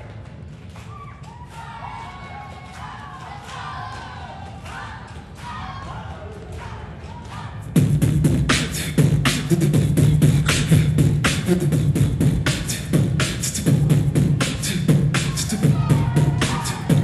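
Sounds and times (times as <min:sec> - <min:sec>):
loud rhythmic beat: 0:00.0 - 0:17.0
low steady bass hum: 0:07.6 - 0:17.0.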